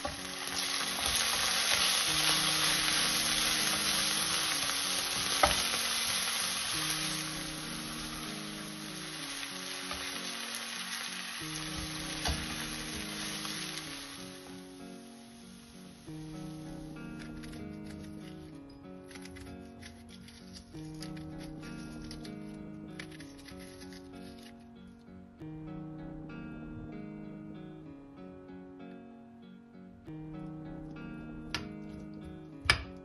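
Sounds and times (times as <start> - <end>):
onions sizzling in oil: 0.0 - 18.4.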